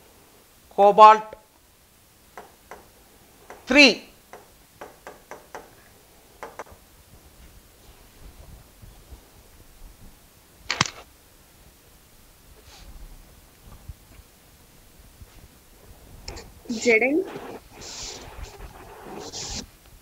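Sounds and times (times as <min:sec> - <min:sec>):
stylus tapping on screen: 0:06.4 - 0:06.8.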